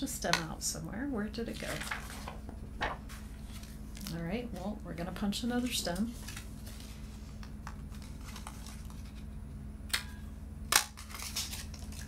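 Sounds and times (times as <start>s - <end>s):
cardstock rustling: 1.5s - 4.7s, 5.6s - 7.3s, 7.9s - 9.3s.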